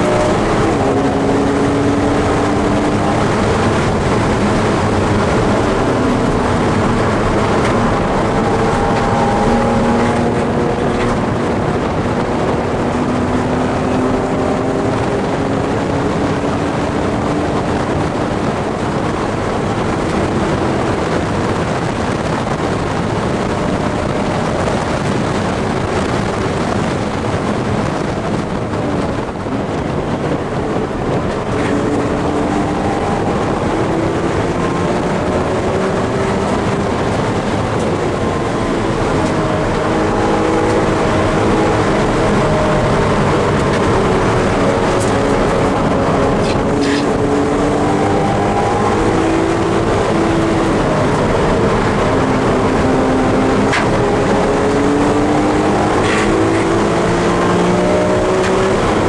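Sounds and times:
car engine accelerating hard: 0:00.0 - 0:59.0
wind and tyre noise: 0:00.0 - 0:59.0.

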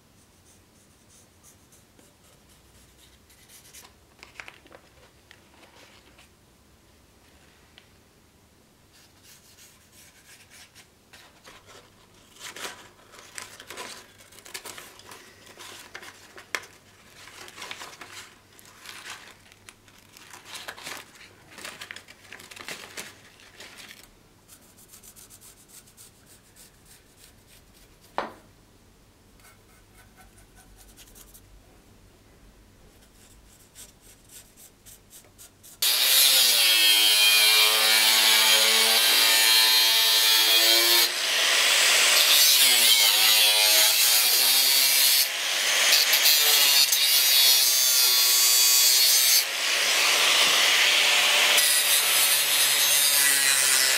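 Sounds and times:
angle grinder cutting metal: 0:35.8 - 0:53.9.

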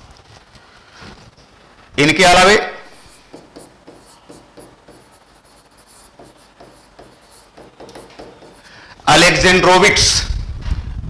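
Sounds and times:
pen tapping and scratching on screen: 0:03.1 - 0:08.7.

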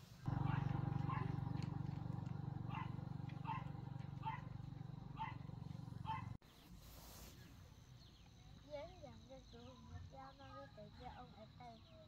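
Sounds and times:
quiet outdoor background: 0:00.0 - 0:12.0.

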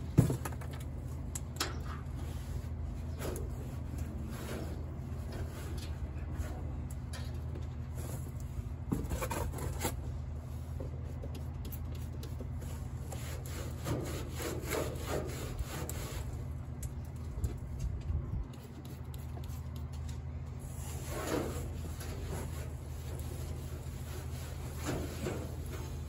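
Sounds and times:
steady low hum: 0:00.0 - 0:26.0
cloth rag rubbing on metal: 0:20.7 - 0:26.0.

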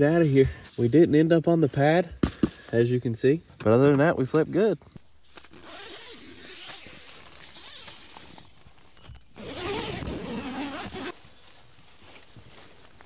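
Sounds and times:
tent zipper being unzipped: 0:05.4 - 0:08.6, 0:09.3 - 0:11.2.

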